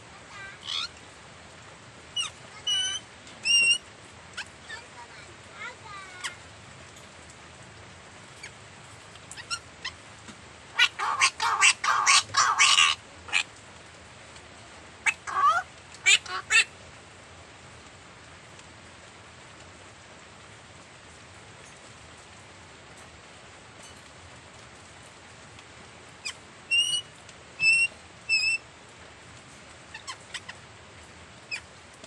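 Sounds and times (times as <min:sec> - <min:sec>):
steady hiss: 0:00.0 - 0:32.0
parrots calling harshly: 0:00.4 - 0:00.9, 0:02.2 - 0:03.8, 0:10.8 - 0:13.5, 0:15.0 - 0:16.7, 0:26.2 - 0:27.0, 0:27.6 - 0:28.6, 0:29.9 - 0:30.6.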